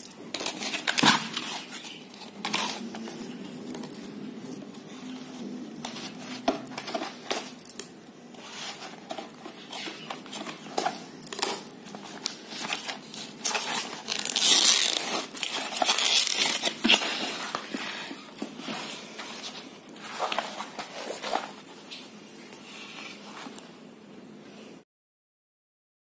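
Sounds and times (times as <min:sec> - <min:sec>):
canvas tearing: 0:13.4 - 0:17.0.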